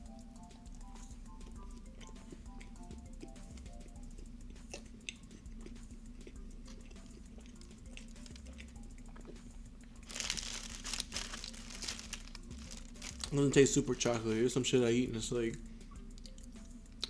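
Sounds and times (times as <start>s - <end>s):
mouth clicks of chewing: 2.0s - 9.5s, 16.1s - 17.0s
paper wrapper crinkling: 10.0s - 14.2s.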